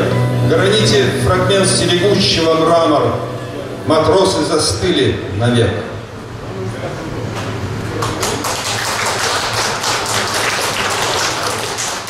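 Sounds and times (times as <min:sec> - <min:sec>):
small audience applauding: 0:07.8 - 0:12.0.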